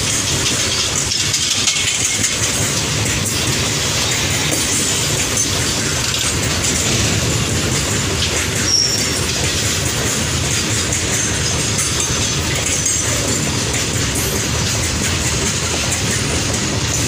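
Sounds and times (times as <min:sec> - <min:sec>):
train wheels clattering on rails: 0:00.0 - 0:17.0
high wheel squeal: 0:08.5 - 0:09.5.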